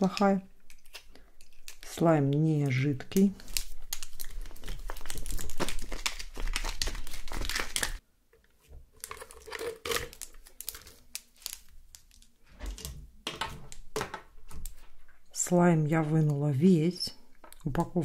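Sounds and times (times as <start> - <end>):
scattered slime crackles: 0.0 - 8.0
plastic package crinkling: 0.2 - 8.0, 8.9 - 12.4.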